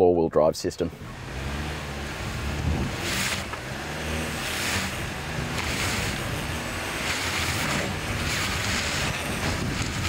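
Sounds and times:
car engine running: 0.8s - 10.0s
wind buffeting microphone: 2.2s - 3.7s, 4.3s - 10.0s.

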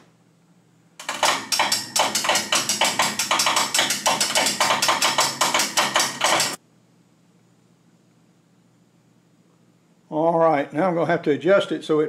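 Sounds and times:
ratchet winch clicking: 1.0s - 6.6s.

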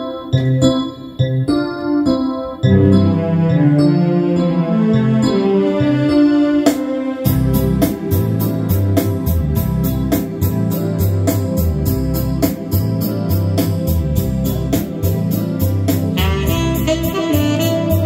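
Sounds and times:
keyboard organ-like chords: 0.0s - 18.0s
steady drum beat: 7.3s - 18.0s.

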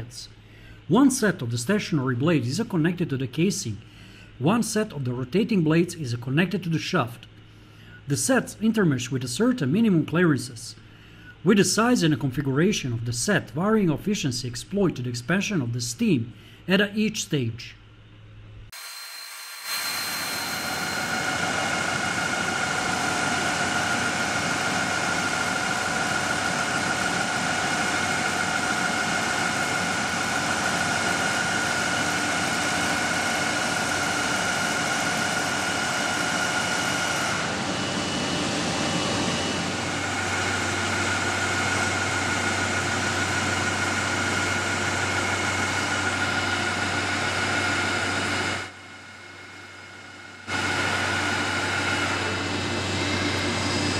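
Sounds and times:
machine whining tones: 18.7s - 53.9s
low hum: 19.6s - 53.9s.

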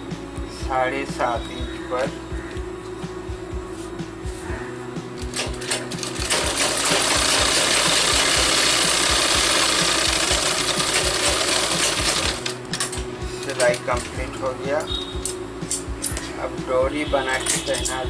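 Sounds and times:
sewing machine stitching: 5.4s - 12.6s.

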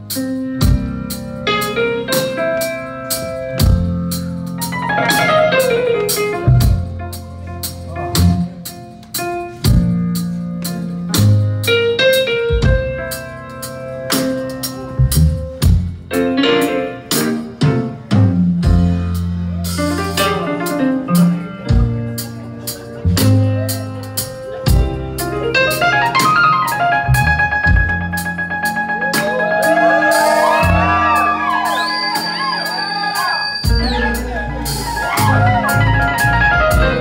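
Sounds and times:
electric bass: 0.0s - 29.1s, 33.6s - 37.0s
drum kit beat: 0.0s - 37.0s
electric guitar: 10.6s - 37.0s.

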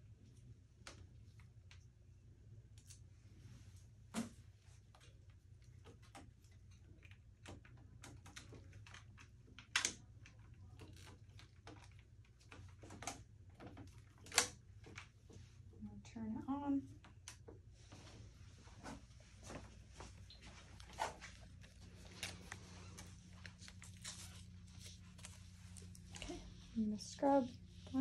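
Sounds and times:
low room hum: 0.0s - 28.0s
plastic tubing handling noises: 4.1s - 15.7s, 17.0s - 26.7s.

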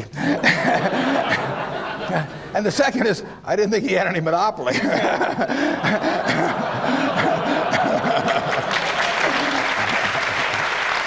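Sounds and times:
audience applauding: 8.0s - 11.0s.

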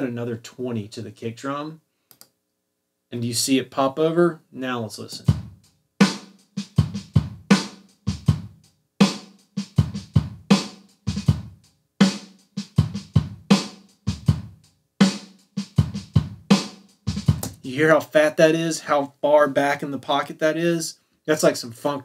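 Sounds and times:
programmed drum groove: 5.0s - 20.8s.

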